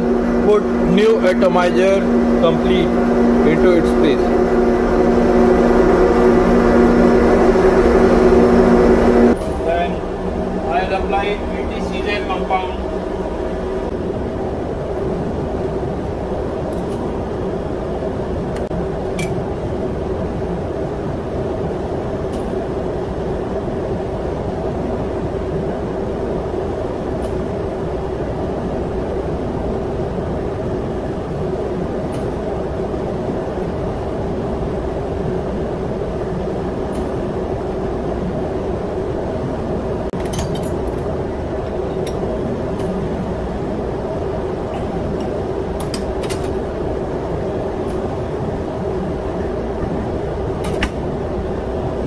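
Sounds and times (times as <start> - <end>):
engine room machinery drone: 0.0 - 52.0.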